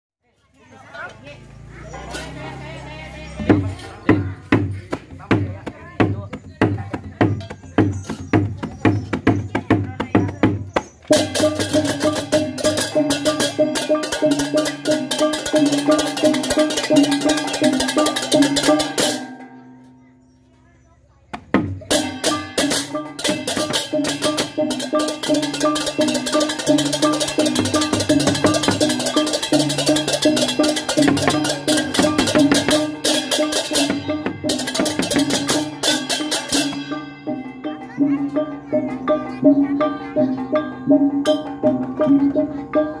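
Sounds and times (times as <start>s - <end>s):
hand drum rhythm: 2.0s - 19.8s, 21.3s - 43.0s
small gongs ringing: 11.1s - 20.2s, 21.9s - 43.0s
clashing cymbals: 21.9s - 37.8s.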